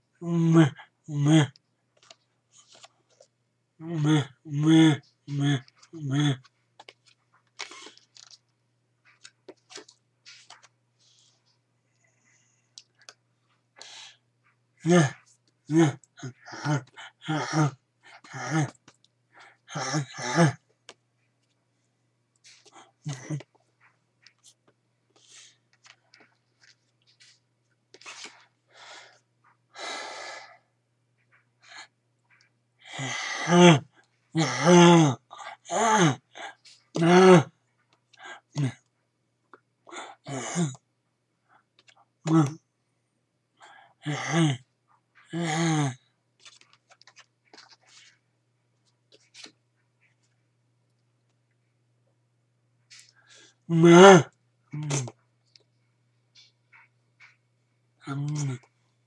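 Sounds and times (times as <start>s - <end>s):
man making vocal sounds: 0.2s - 1.6s, 3.8s - 6.5s, 14.8s - 18.9s, 19.7s - 20.6s, 22.8s - 23.5s, 32.9s - 37.5s, 38.2s - 38.8s, 42.3s - 42.6s, 44.0s - 44.6s, 45.3s - 46.0s, 53.7s - 55.1s, 58.0s - 58.7s
flash cards rustling and clicking: 1.9s - 3.3s, 5.6s - 11.6s, 22.4s - 28.6s, 46.4s - 50.4s
man breathing: 13.8s - 14.2s, 28.3s - 30.7s
mouth clicks: 54.0s - 55.2s.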